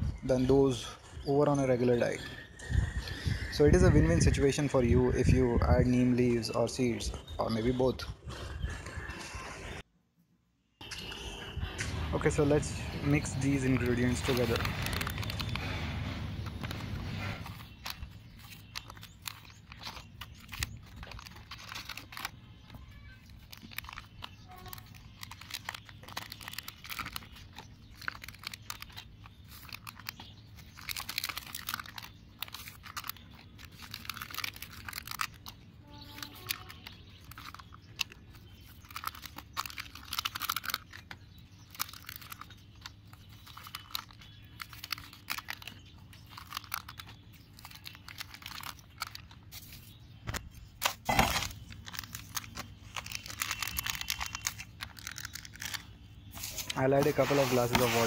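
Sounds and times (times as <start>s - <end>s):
dry material crunching and rustling: 13.0s - 58.0s.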